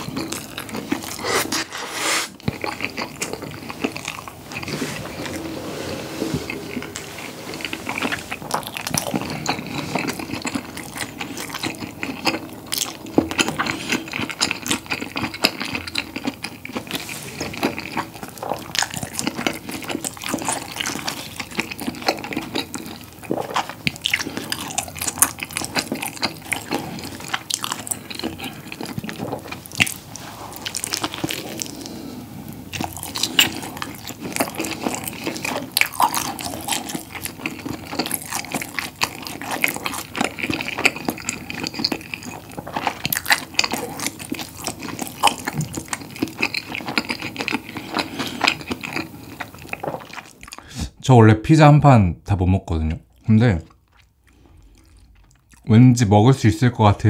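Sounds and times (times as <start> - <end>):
wet chewing: 0.0 - 50.7, 52.9 - 55.7.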